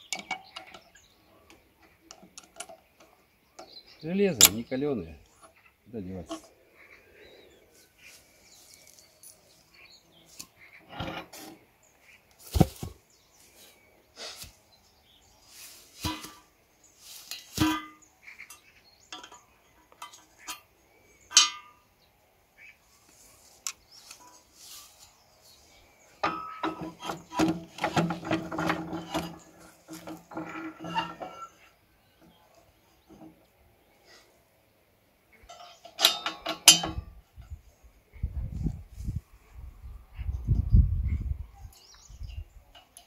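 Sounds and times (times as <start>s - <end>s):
metal wheel parts knocking: 16.0s - 16.5s, 17.3s - 20.6s, 21.3s - 21.7s, 26.2s - 31.6s, 35.5s - 37.2s
ringing metal clatter: 17.4s - 20.7s, 21.3s - 21.8s, 26.2s - 31.7s, 35.5s - 37.2s.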